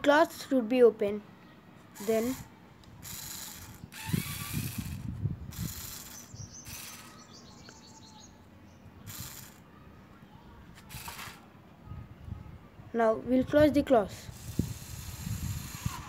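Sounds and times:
small geared motors whirring: 0:01.9 - 0:07.6, 0:09.0 - 0:09.7, 0:10.8 - 0:11.4, 0:14.2 - 0:16.0.

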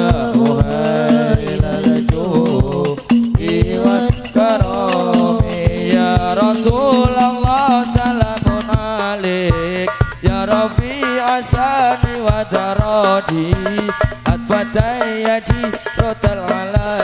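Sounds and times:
gliding vocal melody: 0:00.0 - 0:07.3.

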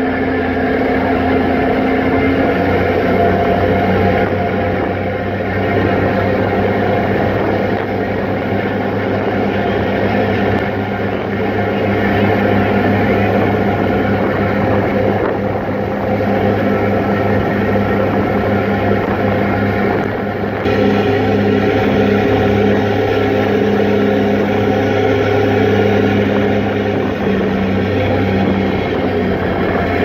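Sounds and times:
ferry engine drone: 0:00.0 - 0:30.0
rushing wind: 0:00.0 - 0:30.0
water noise: 0:00.0 - 0:30.0.

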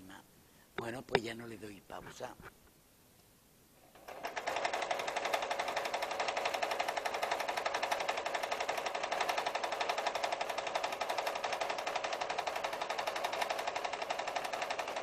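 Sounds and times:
sewing machine stitching: 0:03.9 - 0:15.0.

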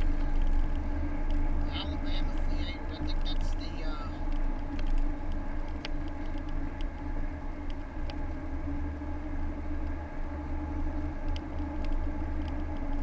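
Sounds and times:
car engine and road noise: 0:00.0 - 0:13.0
faint ticks: 0:00.0 - 0:13.0.

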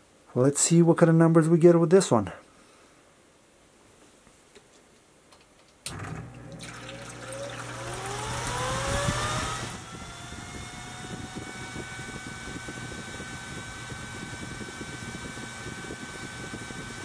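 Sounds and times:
exhaust fan motor whine: 0:05.9 - 0:17.0.

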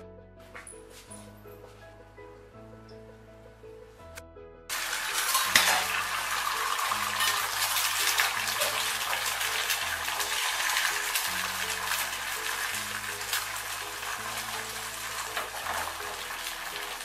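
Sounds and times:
egg sizzling in a frying pan: 0:04.7 - 0:17.0.

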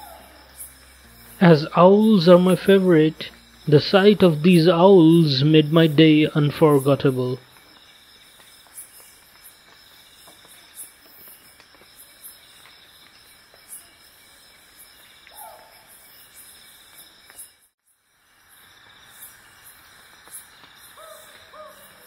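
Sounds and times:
insects chirring: 0:00.0 - 0:22.0.

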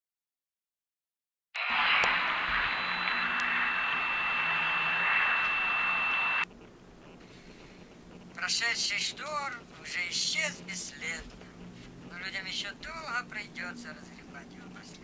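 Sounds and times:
high whine: 0:01.6 - 0:06.5
television static hiss: 0:01.6 - 0:15.0.

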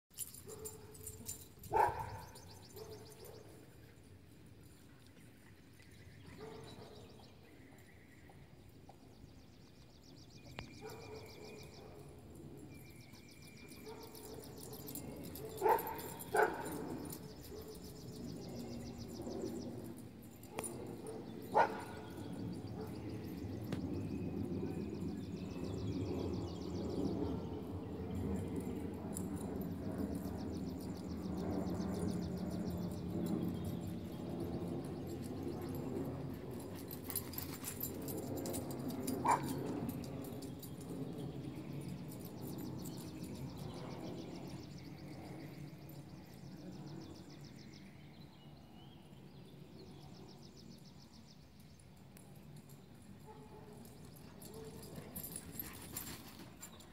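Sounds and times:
dog barking: 0:01.7 - 0:03.4, 0:10.8 - 0:11.4, 0:15.5 - 0:16.8, 0:21.0 - 0:22.2, 0:39.2 - 0:39.6.

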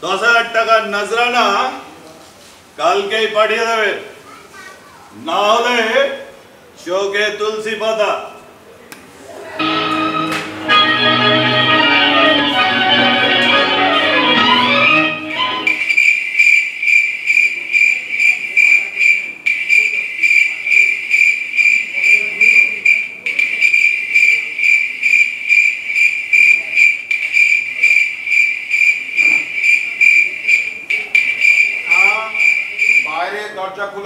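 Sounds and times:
cricket chirping: 0:15.7 - 0:33.1.

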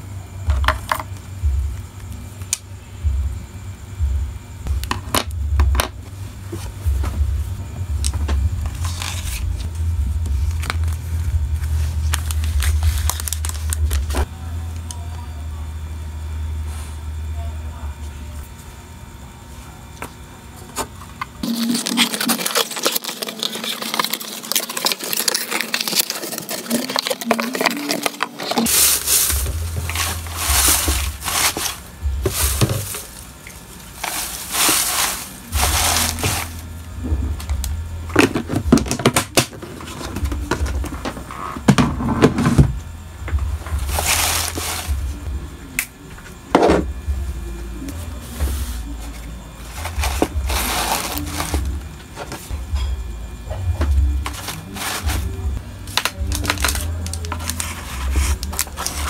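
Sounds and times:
packing materials crinkling: 0:08.7 - 0:14.3, 0:21.4 - 0:36.7, 0:43.8 - 0:45.0, 0:49.7 - 0:52.4, 0:54.2 - 0:59.0.

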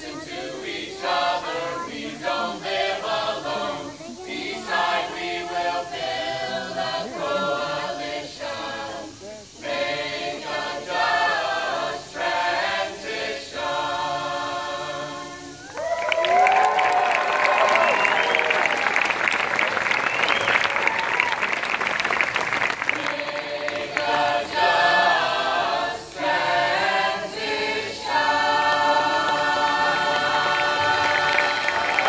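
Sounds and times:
group of voices singing: 0:00.0 - 0:15.7, 0:22.8 - 0:32.0
applause: 0:15.6 - 0:24.4, 0:29.2 - 0:32.0.

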